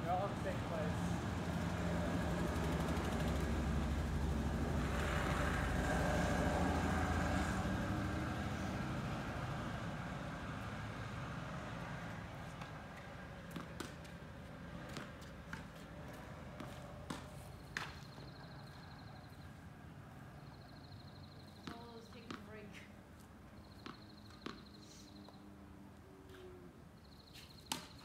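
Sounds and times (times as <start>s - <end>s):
tennis ball hitting racket and court: 12.1s - 18.5s, 21.4s - 25.4s, 27.3s - 28.0s.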